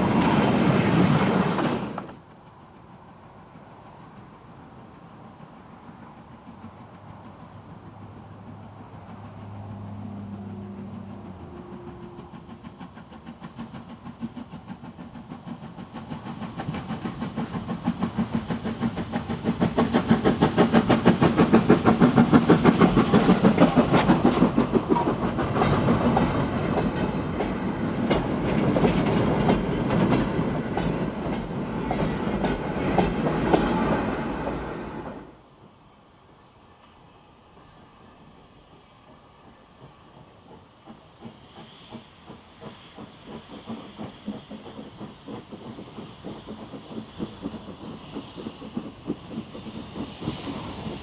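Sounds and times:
steam locomotive exhaust beats: 0.0s - 51.0s
wagons clattering on rails: 17.8s - 33.7s.

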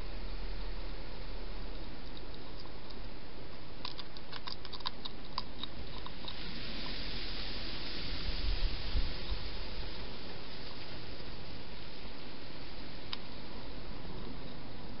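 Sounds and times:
steady hiss: 0.0s - 15.0s
hedgehog crunching food: 1.7s - 7.0s.

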